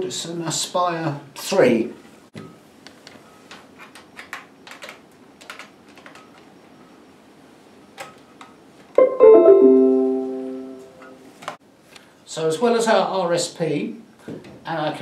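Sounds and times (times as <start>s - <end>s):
laptop keyboard clicks: 3.9s - 6.5s
plucked-string chord: 9.0s - 11.2s.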